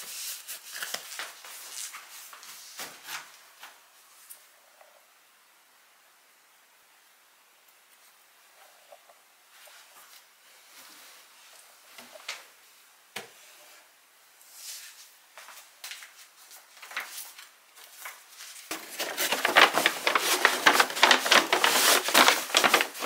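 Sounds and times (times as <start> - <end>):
papers rustling: 0.0 - 3.8, 15.4 - 23.0
paper bag crinkling: 16.5 - 23.0.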